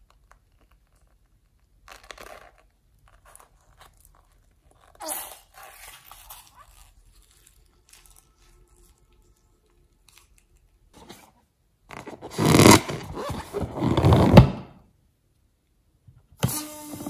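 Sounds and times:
rubber balloon rubbing: 0:11.0 - 0:14.7.

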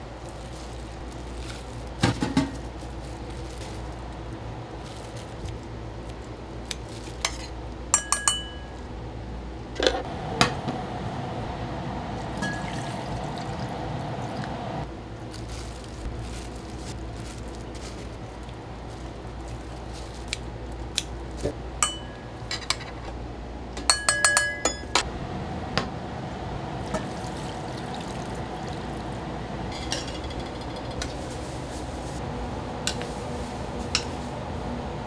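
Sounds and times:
steady low hum: 0:00.0 - 0:35.0
dishes and utensils clinking: 0:07.2 - 0:08.8, 0:21.8 - 0:23.1, 0:23.8 - 0:25.0, 0:29.7 - 0:31.2.

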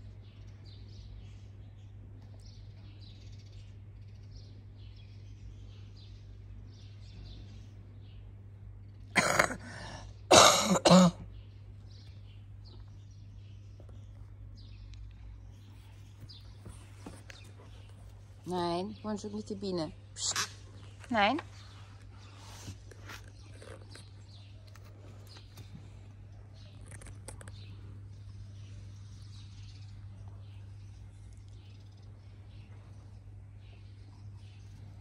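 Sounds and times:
person coughing: 0:09.2 - 0:11.2
faint bird chirping: 0:11.1 - 0:35.0.

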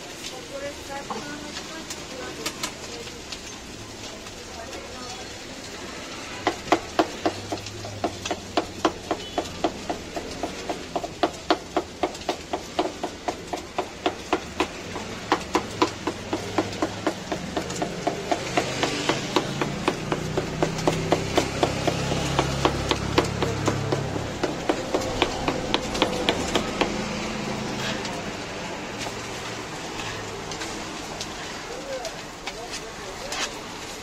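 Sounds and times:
knife chopping on wooden board: 0:06.4 - 0:27.2.

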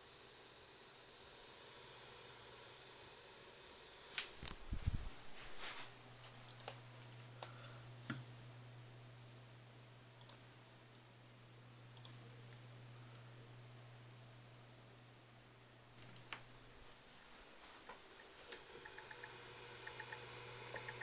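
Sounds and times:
computer mouse clicks: 0:06.3 - 0:08.2, 0:10.2 - 0:10.4, 0:12.0 - 0:12.6, 0:16.0 - 0:16.4, 0:18.2 - 0:21.0.

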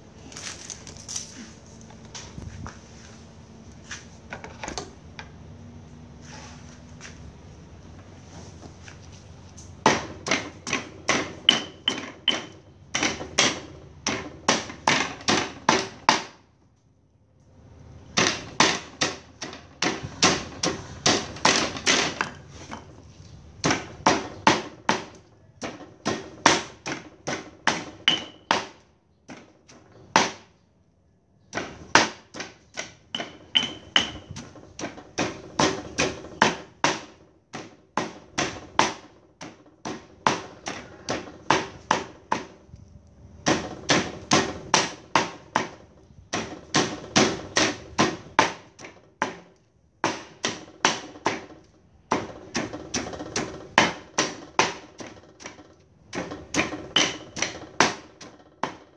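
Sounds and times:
stone pestle pounding in mortar: 0:09.8 - 0:16.4, 0:18.2 - 0:22.9, 0:23.6 - 0:29.5, 0:31.5 - 0:42.6, 0:43.4 - 0:51.5, 0:52.1 - 0:58.9.

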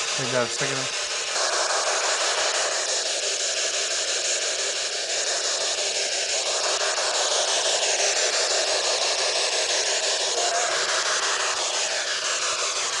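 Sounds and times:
faint wavering radio fragments: 0:00.0 - 0:02.7, 0:10.2 - 0:12.2
radio static hiss: 0:00.0 - 0:13.0.

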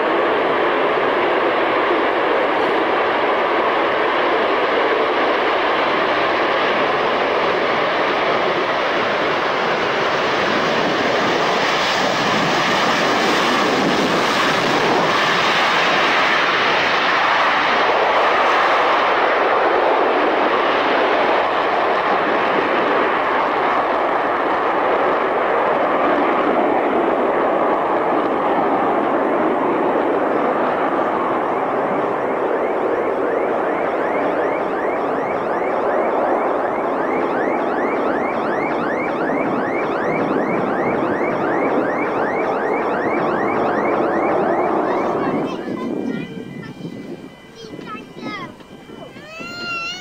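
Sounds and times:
jet engines roaring: 0:00.0 - 0:50.0
car alarm whooping: 0:32.0 - 0:50.0.

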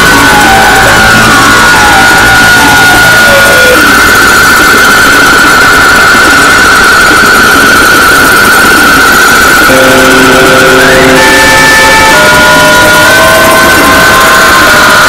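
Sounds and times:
noisy synthesizer music: 0:00.0 - 0:15.0
held high tone warbling: 0:09.0 - 0:15.0.

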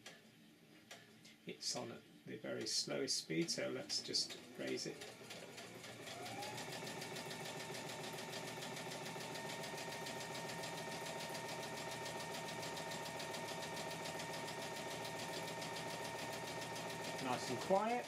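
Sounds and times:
sewing machine motor hum: 0:04.4 - 0:18.0.

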